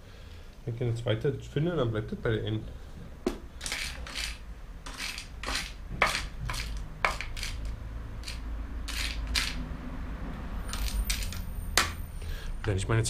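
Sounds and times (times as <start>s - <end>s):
metal screws clinking in plastic crate: 3.6s - 9.6s, 10.7s - 11.5s.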